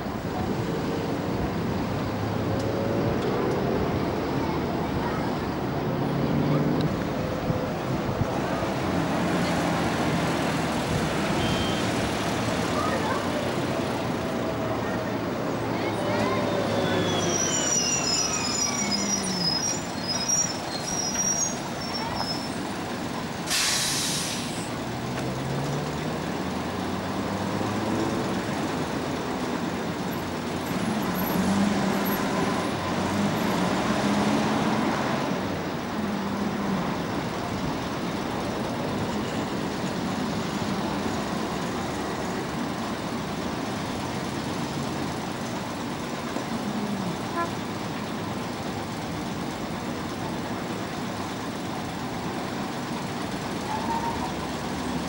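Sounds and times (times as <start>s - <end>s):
bus engines running: 0.0s - 55.0s
passing traffic: 0.0s - 55.0s
hissing air burst: 23.4s - 24.7s.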